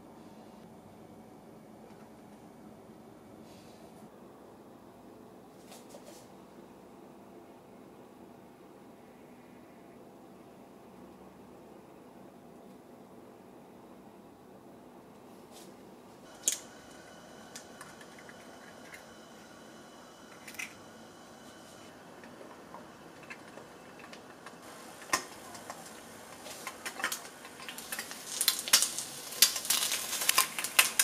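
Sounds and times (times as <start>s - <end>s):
egg frying in oil: 16.3s - 31.0s.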